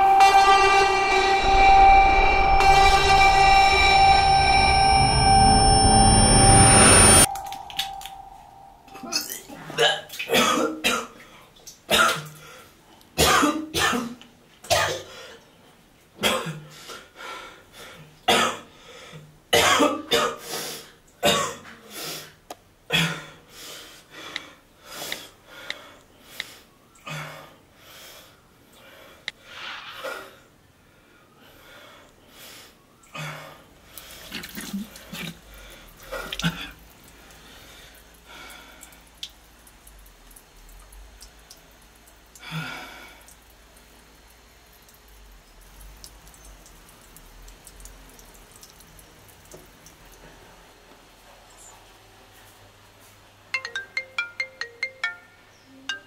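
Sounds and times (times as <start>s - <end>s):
man coughing and retching: 9.1s - 11.2s, 11.9s - 12.4s, 13.2s - 15.1s, 19.6s - 20.4s, 21.2s - 21.7s.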